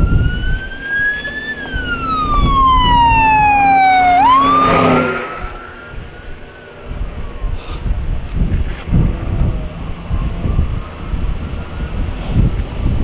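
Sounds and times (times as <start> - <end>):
siren wailing: 0.0 - 8.2.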